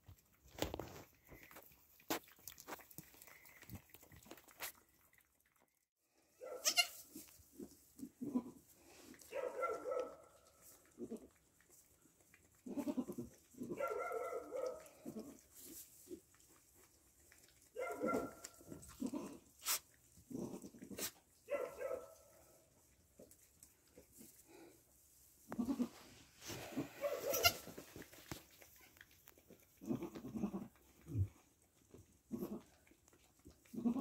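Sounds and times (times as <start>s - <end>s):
goats bleating: 6.6s - 7.0s, 27.2s - 27.7s.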